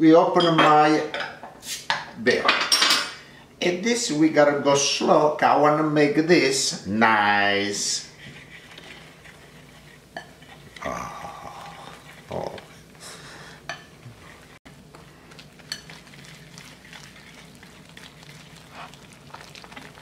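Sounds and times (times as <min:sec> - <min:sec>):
whisk wires scraping bowl: 0:07.7 - 0:20.0
wire whisk stirring batter: 0:07.8 - 0:13.0, 0:13.7 - 0:20.0.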